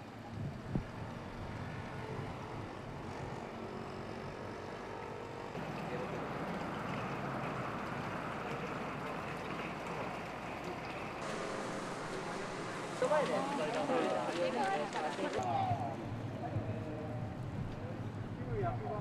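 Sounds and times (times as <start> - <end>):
road traffic noise: 0.0 - 19.0
faint voices: 8.3 - 19.0
even hiss: 11.2 - 15.0.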